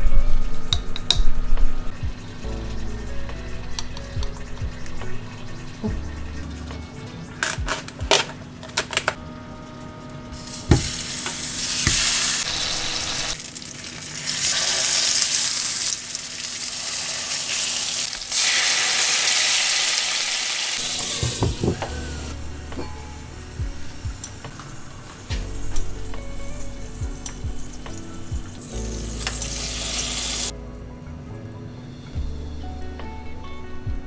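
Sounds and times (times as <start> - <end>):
meat sizzling in oil: 10.4 - 22.3, 28.5 - 30.5.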